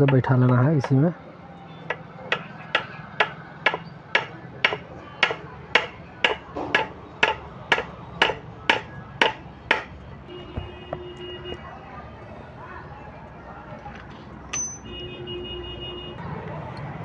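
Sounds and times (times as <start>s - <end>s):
hammer on metal: 1.9s - 9.9s.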